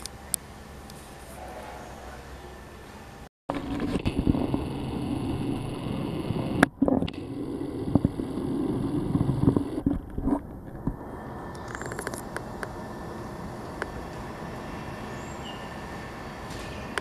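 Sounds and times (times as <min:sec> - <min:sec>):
air conditioner humming: 0:07.2 - 0:17.0.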